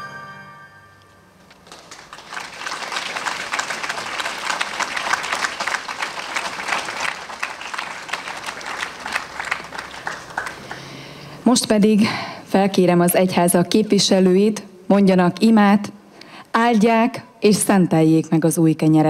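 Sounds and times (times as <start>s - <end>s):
crowd applauding: 1.4s - 11.2s.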